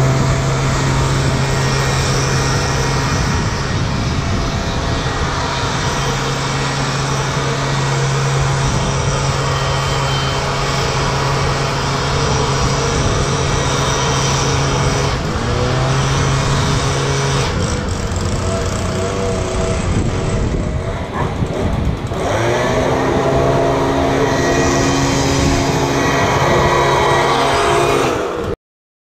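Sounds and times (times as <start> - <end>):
leaf blower engine revving: 0.0 - 28.6.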